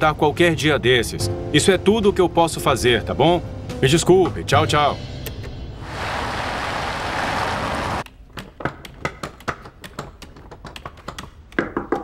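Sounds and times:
vehicle driving past: 5.8 - 8.0.

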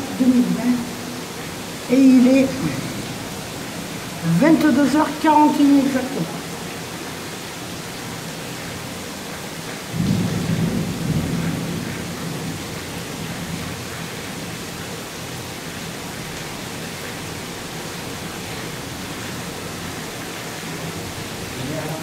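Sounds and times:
heavy rain hissing: 0.0 - 22.0
thunder rumble: 9.9 - 13.8.

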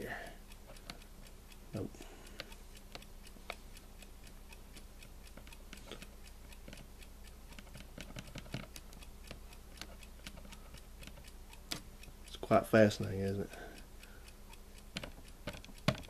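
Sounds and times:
alarm clock buttons clicking: 14.8 - 16.0.

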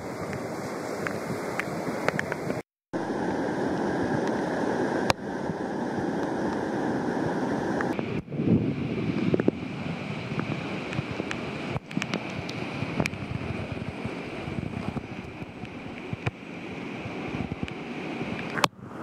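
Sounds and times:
flood water rushing: 0.0 - 19.0
wind buffeting microphone: 5.0 - 19.0.

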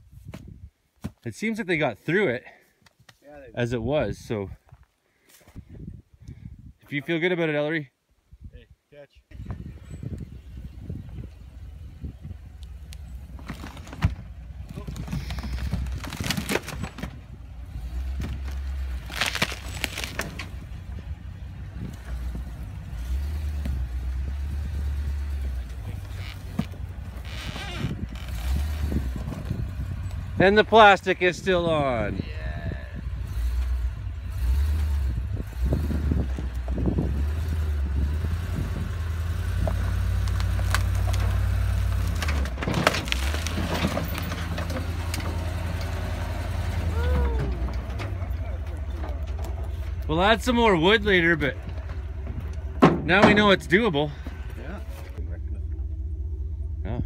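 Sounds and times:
truck engine rumbling: 9.3 - 57.0
logs and gravel crunching under tyres: 10.8 - 32.2, 33.2 - 55.2
wood cracking under wheels: 12.6 - 30.3, 38.9 - 53.8.

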